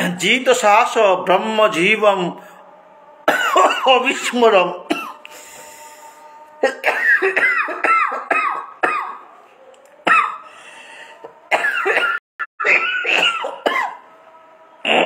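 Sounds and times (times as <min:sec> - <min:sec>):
man coughing: 0:03.3 - 0:04.0, 0:04.9 - 0:05.2, 0:06.6 - 0:09.2, 0:10.1 - 0:10.4, 0:11.5 - 0:14.0.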